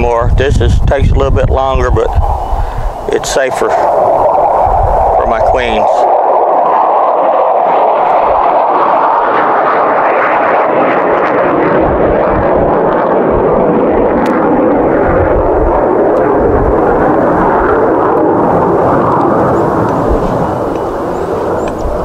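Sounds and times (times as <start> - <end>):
wind buffeting microphone: 0.0 - 22.0
honey bees buzzing: 16.7 - 22.0.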